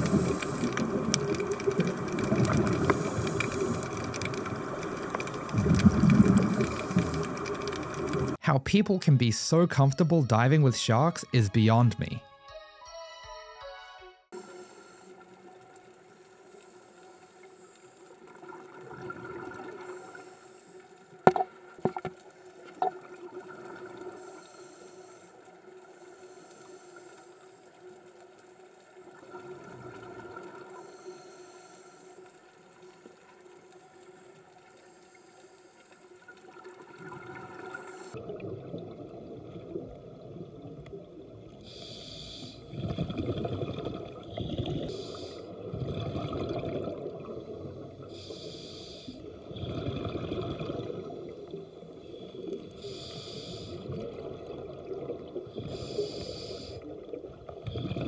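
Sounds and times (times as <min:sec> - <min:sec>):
exhaled bubbles gurgling: 0:00.0 - 0:08.4, 0:18.2 - 0:20.2, 0:36.2 - 0:48.3, 0:49.2 - 0:58.0
underwater low hum: 0:00.0 - 0:08.4, 0:14.4 - 0:58.0
rough water noise: 0:00.0 - 0:11.8, 0:14.4 - 0:58.0.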